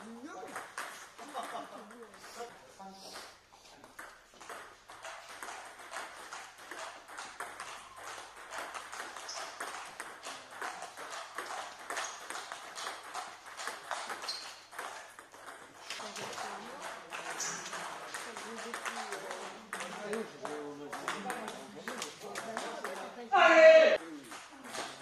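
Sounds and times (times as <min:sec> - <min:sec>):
distant ping pong clicks: 0:03.9 - 0:23.0.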